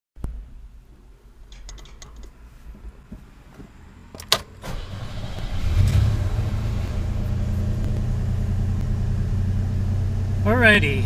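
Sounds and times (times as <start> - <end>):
pickup engine cranking and idling: 4.1 - 11.0.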